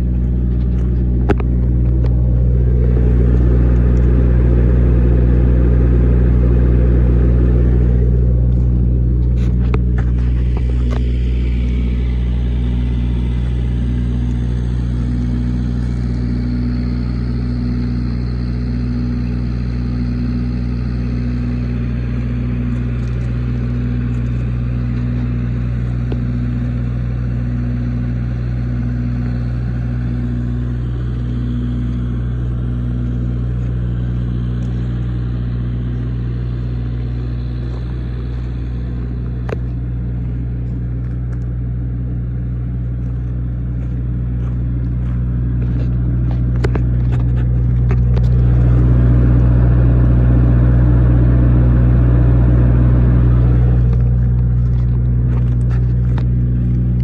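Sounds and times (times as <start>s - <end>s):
faint pulsing tone: 0.0s - 42.9s
bus engine idling: 0.0s - 57.0s.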